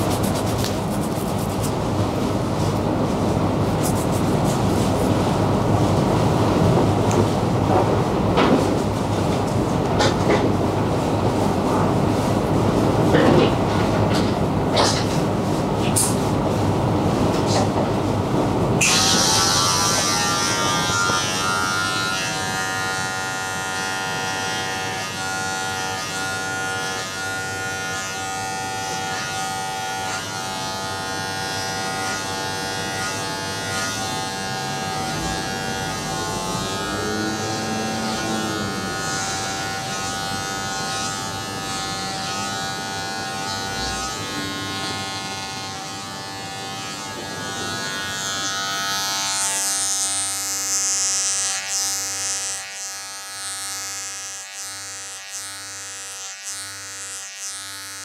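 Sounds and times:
electric hair clippers buzzing: 0:18.8 - 0:58.0.

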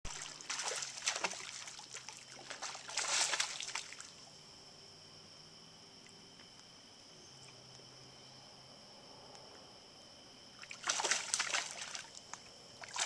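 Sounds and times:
water splashing against rocks: 0:00.1 - 0:04.1, 0:10.6 - 0:13.0.

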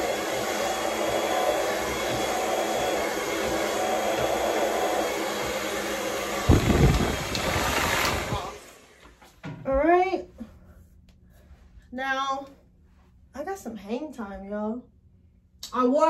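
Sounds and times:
hair dryer blowing air: 0:00.0 - 0:09.2.

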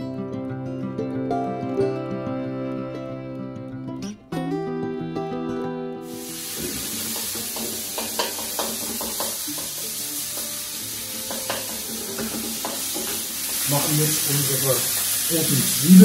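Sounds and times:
meat sizzling in a wok: 0:06.0 - 0:16.0
spatula knocking on pan: 0:06.6 - 0:10.6, 0:11.2 - 0:13.6.

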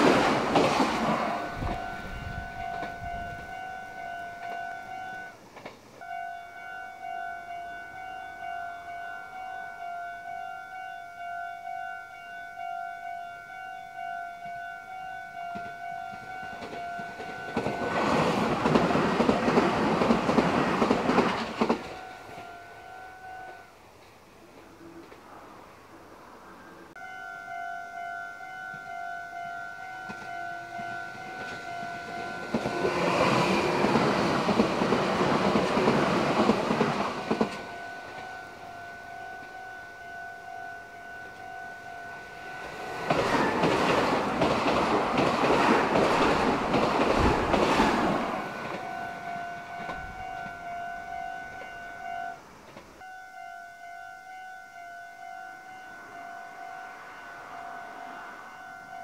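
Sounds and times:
wheels clattering over rails: 0:00.0 - 0:03.1, 0:16.6 - 0:22.4, 0:42.6 - 0:49.0
electric train passing: 0:00.0 - 0:59.0
high electronic ringing tone: 0:01.4 - 0:05.4, 0:27.0 - 0:33.9, 0:53.0 - 0:59.0.

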